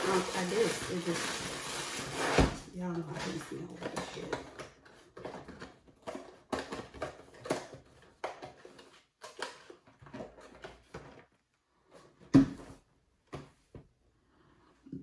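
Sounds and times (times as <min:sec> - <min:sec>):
plastic bag crinkling: 0:00.0 - 0:08.8.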